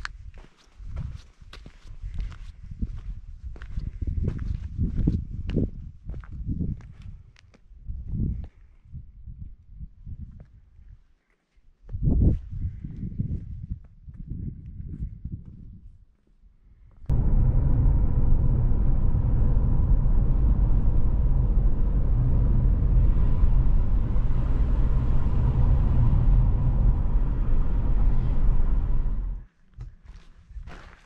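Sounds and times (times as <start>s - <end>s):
car road and engine noise: 17.1s - 29.5s.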